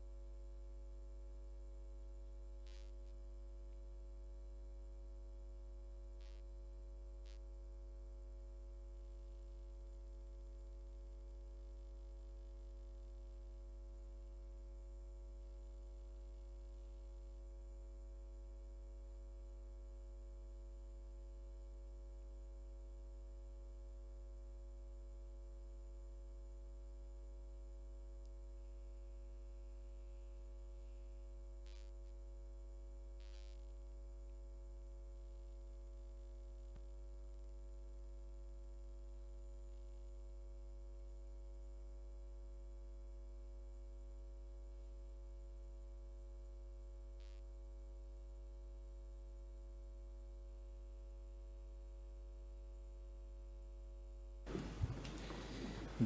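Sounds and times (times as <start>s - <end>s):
electrical mains hum: 54.5s - 56.0s.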